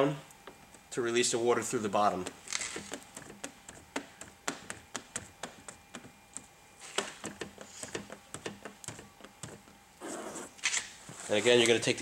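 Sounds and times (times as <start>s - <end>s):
squeegee ticking on wet film: 2.1s - 9.6s.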